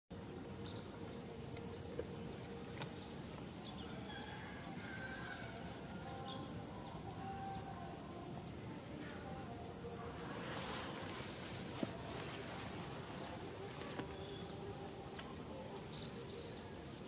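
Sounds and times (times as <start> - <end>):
high insect drone: 0.1 - 17.0.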